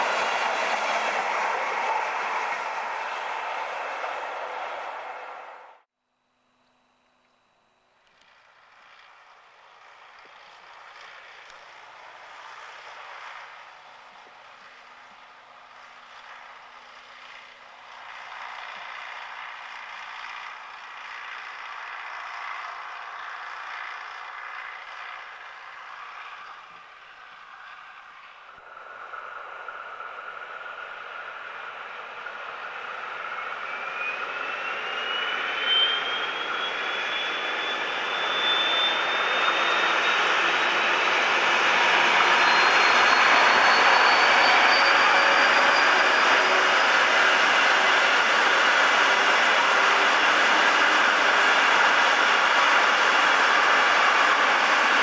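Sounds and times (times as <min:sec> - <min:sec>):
diesel locomotive engine: 0:00.0 - 0:05.9, 0:07.9 - 0:55.0
turbocharger whistle: 0:29.8 - 0:55.0.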